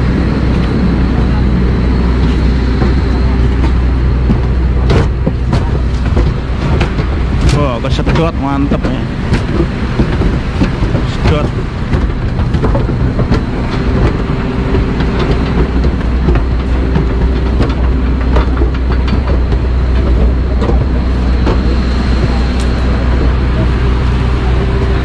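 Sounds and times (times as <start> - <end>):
footsteps on metal stairs: 0.0 - 25.0
jet aircraft drone: 0.0 - 25.0
roller bag knocking: 2.2 - 25.0.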